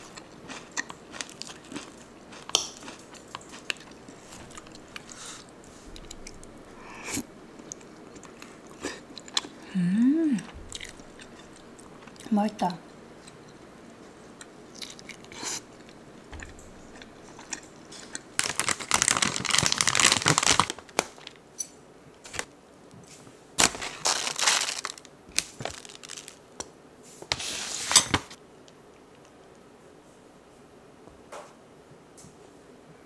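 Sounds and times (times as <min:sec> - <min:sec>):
plastic pouch crinkling: 0:18.4 - 0:21.4, 0:23.6 - 0:26.6.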